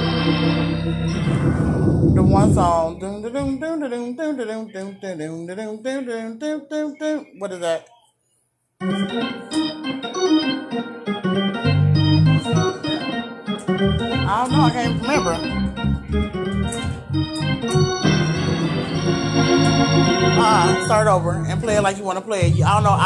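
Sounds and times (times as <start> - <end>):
organ playing chords: 0.0 - 3.4, 8.8 - 23.0.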